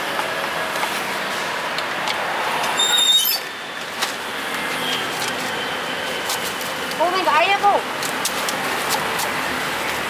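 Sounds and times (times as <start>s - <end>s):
street traffic: 0.0s - 10.0s
high-pitched squeal: 2.7s - 3.7s.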